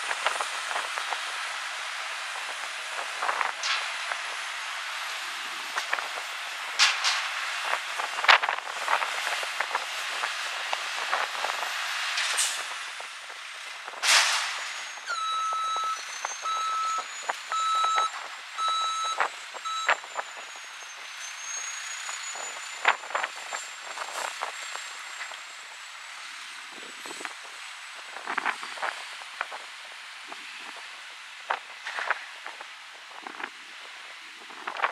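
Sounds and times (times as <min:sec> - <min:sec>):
reversing beeper: 0:14.6 - 0:22.8.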